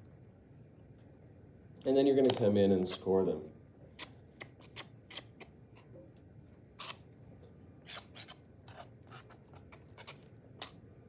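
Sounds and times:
tool scratching clay: 4.0 - 6.0, 6.8 - 7.0, 7.8 - 10.8.

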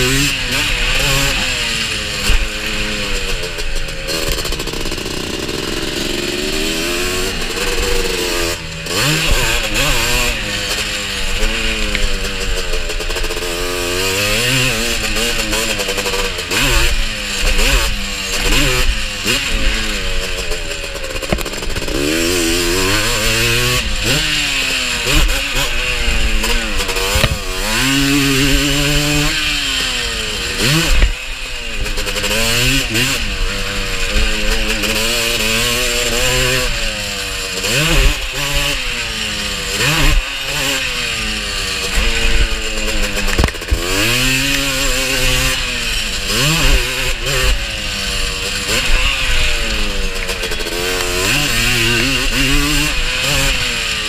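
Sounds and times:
quad engine revving: 0.0 - 54.0
sharp knocks: 27.0 - 27.7.

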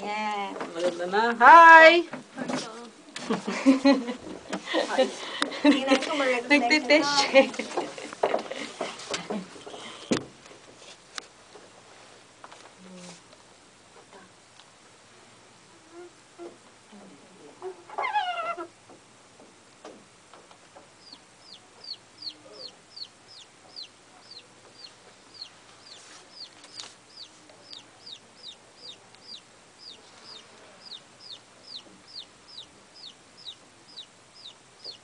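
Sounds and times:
high falling chirps: 21.0 - 35.0.

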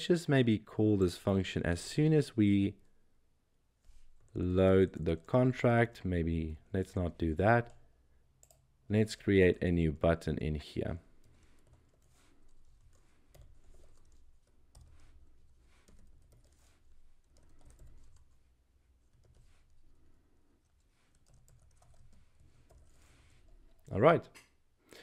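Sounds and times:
typing on a keyboard: 15.8 - 18.4, 21.1 - 23.9.

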